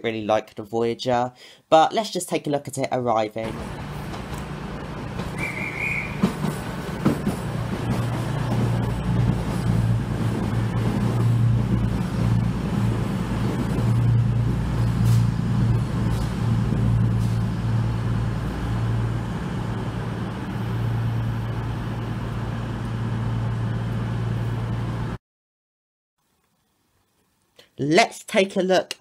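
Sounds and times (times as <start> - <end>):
diesel train engines humming: 3.4 - 25.2.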